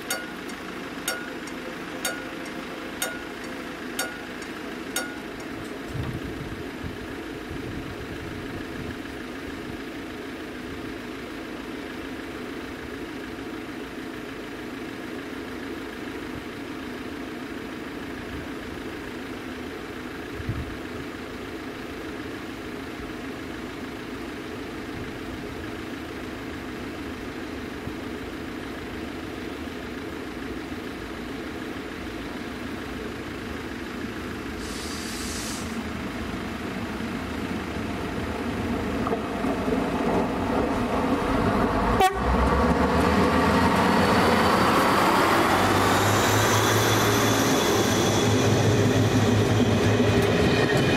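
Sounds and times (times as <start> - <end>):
level crossing warning bell: 0.0 - 5.8
diesel railcar approaching: 0.0 - 50.9.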